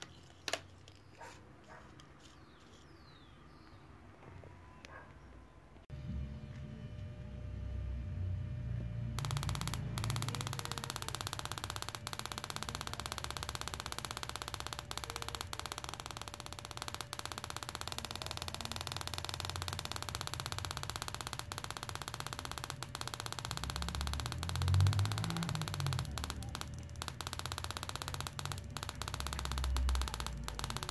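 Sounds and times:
faint steady whine: 6.0s - 30.9s
spark plug crackling: 9.2s - 30.9s.

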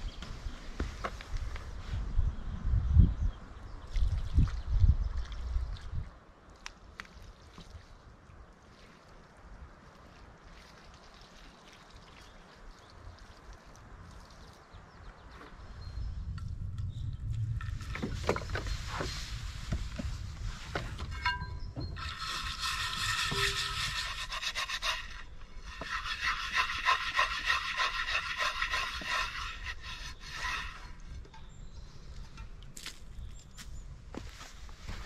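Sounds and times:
pan scrubbed with pine needles: 22.0s - 31.1s.

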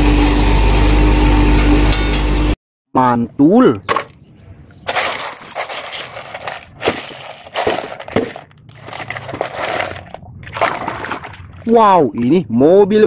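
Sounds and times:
plastic toys and gravel rattling: 4.8s - 11.4s.

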